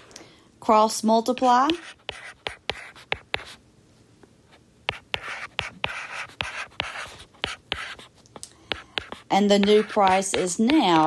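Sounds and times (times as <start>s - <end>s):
stylus tapping and scratching: 1.3s - 3.6s, 4.9s - 11.0s.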